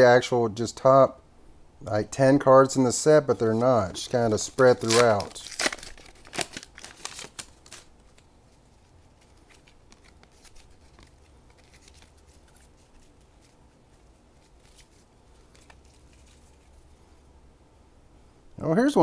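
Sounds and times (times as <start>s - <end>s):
foil wrapper crinkling: 3.4s - 16.9s
cards being slid and fanned: 9.2s - 16.8s.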